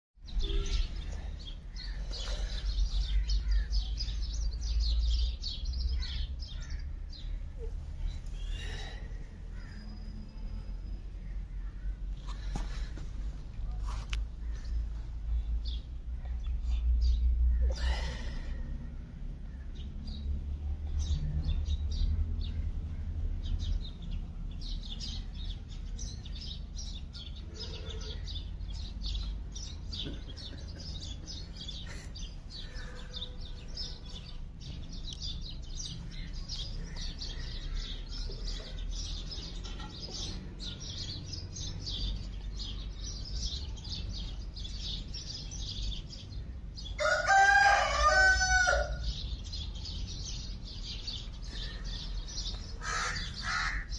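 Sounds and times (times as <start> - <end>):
small birds chirping: 0.2 - 53.9
rooster crowing: 47.0 - 49.1.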